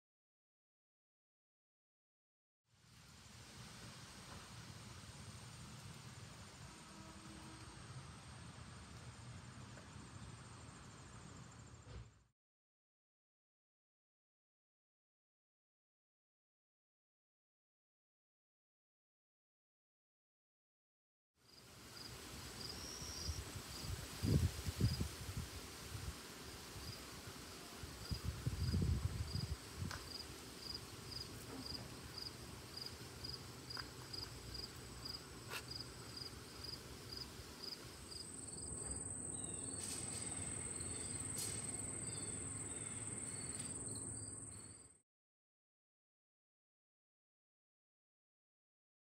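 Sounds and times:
crickets chirping: 21.5 - 25.2, 28.0 - 45.0
high-pitched insect trill: 28.0 - 45.0.

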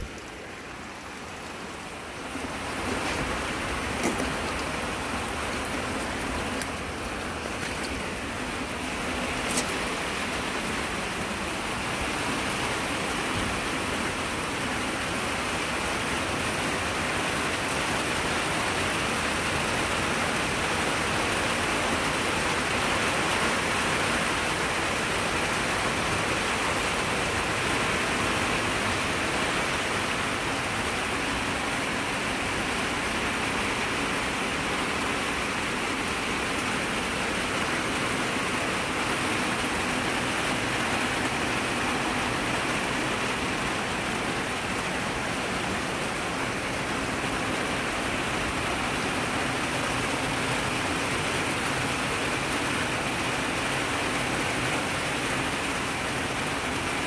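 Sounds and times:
heavy rain on plastic roof: 0.0 - 57.0.

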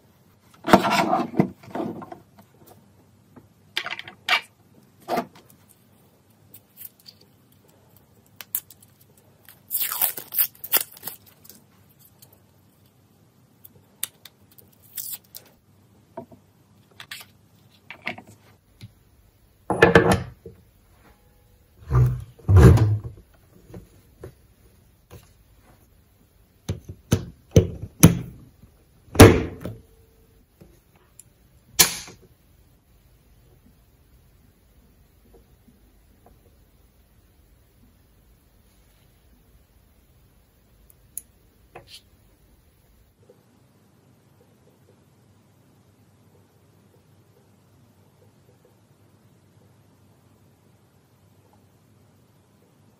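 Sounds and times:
plastic and metal knocks and scrapes: 0.6 - 2.3.

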